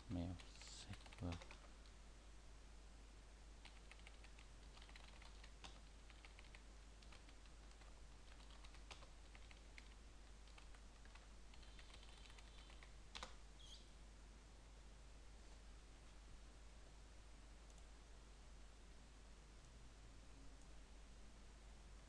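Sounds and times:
faint keyboard typing: 0:00.1 - 0:02.0, 0:03.6 - 0:13.4, 0:17.6 - 0:17.9
sharp keyboard click: 0:00.9 - 0:01.6, 0:03.6 - 0:13.3.

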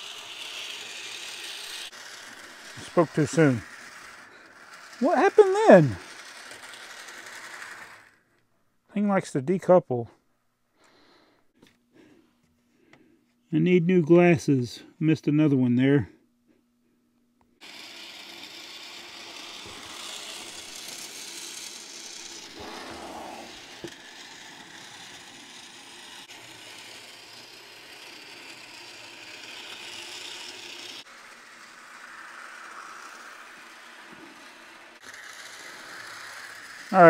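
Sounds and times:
wheels rolling on rails: 0:00.0 - 0:08.2, 0:17.6 - 0:37.0
model train motor whirring: 0:00.0 - 0:08.4, 0:17.6 - 0:37.0.

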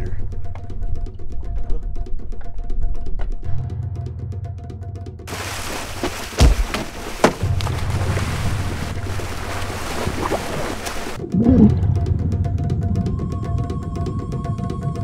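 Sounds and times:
heavy thuds: 0:05.3 - 0:11.2
water splashing at boat side: 0:05.3 - 0:11.2.

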